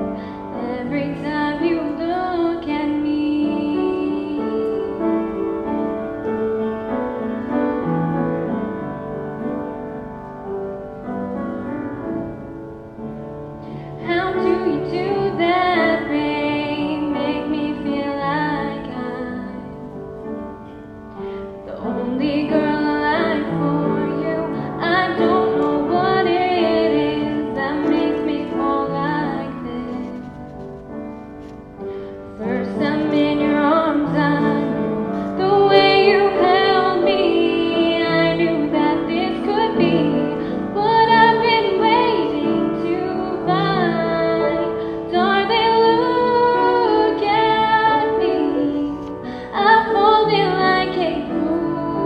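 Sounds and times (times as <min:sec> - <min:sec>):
woman singing: 0:00.0 - 0:05.9, 0:13.9 - 0:20.0, 0:21.6 - 0:30.3, 0:32.3 - 0:52.0
piano accompaniment: 0:00.0 - 0:52.0.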